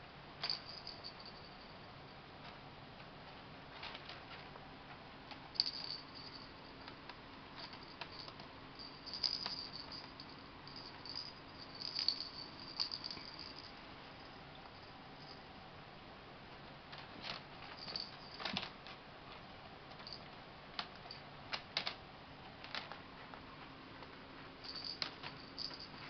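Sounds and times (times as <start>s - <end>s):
faint steady hum: 0.0s - 26.0s
light clicks and rattles: 16.9s - 22.0s.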